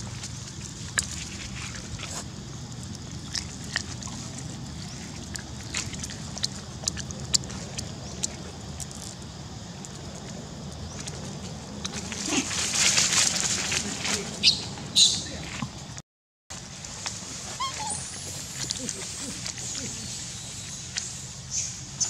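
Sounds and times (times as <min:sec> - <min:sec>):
monkey chewing wet mouth clicks: 0:02.6 - 0:09.2.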